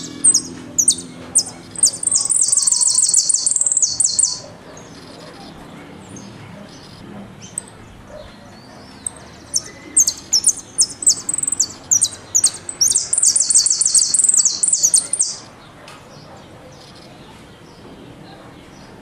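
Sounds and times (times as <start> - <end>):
finch singing rapid trill: 0.0 - 4.5, 9.0 - 15.5.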